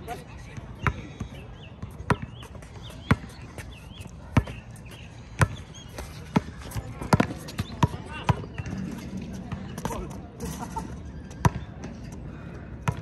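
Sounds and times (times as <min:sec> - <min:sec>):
basketball bouncing on concrete: 0:00.5 - 0:10.0.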